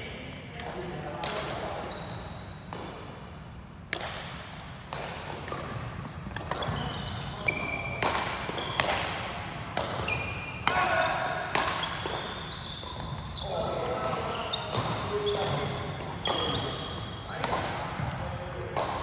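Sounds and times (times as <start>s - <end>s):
court shoes squeaking: 1.3s - 3.1s, 5.4s - 19.0s
racket hitting shuttlecock: 3.8s - 13.3s, 14.6s - 19.0s.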